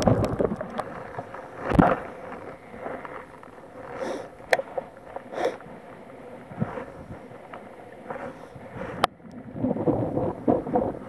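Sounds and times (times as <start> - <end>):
wind on microphone: 0.0 - 2.8, 6.4 - 7.4, 8.0 - 11.0.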